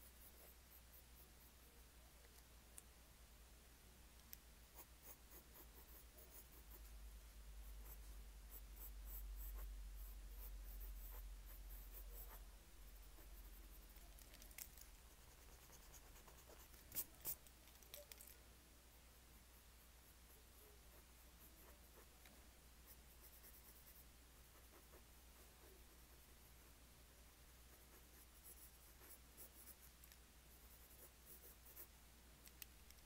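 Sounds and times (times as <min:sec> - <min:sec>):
pencil scratching on paper: 0:00.0 - 0:01.8, 0:04.7 - 0:07.0, 0:07.6 - 0:18.3, 0:19.4 - 0:26.7, 0:27.5 - 0:31.9
low steady hum: 0:00.0 - 0:33.0.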